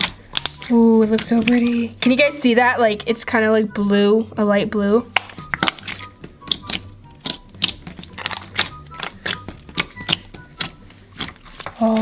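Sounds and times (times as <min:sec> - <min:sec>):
slime squelching wet clicks and pops: 0:00.0 - 0:02.2, 0:05.1 - 0:12.0
quiet background music: 0:00.0 - 0:12.0.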